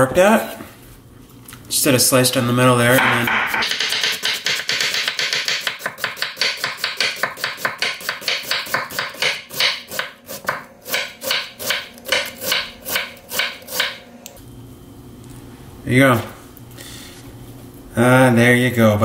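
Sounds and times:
knife slicing cabbage on board: 4.4s - 14.0s.

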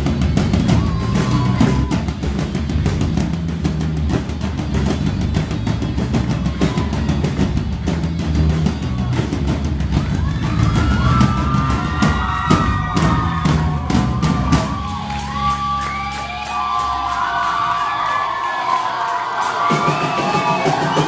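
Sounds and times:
drum and cymbal hits: 0.0s - 21.0s
live rock band playing: 0.0s - 21.0s
people shouting and whooping: 0.1s - 2.3s, 6.0s - 7.7s, 8.6s - 21.0s.

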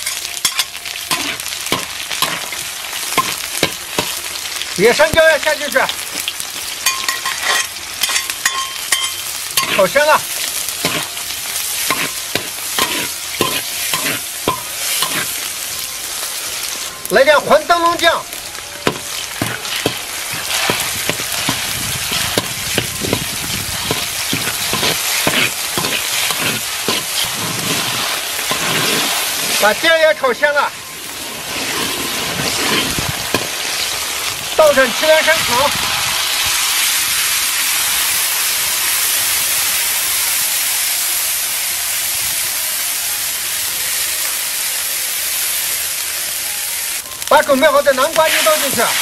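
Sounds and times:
metal spatula scraping a wok: 0.0s - 4.2s, 6.8s - 10.0s, 10.8s - 15.6s, 18.8s - 29.6s, 31.0s - 33.8s
sauce sizzling in hot oil: 0.0s - 49.0s.

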